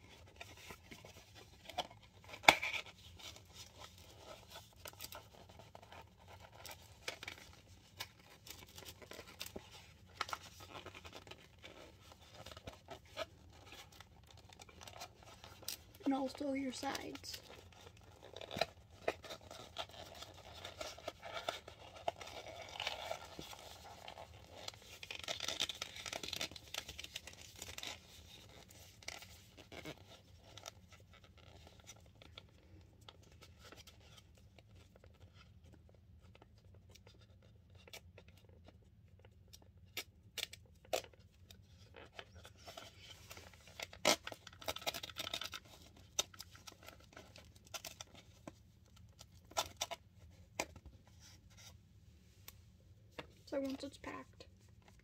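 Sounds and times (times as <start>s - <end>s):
cardboard box folding and tearing: 0.0s - 38.6s, 39.8s - 51.8s.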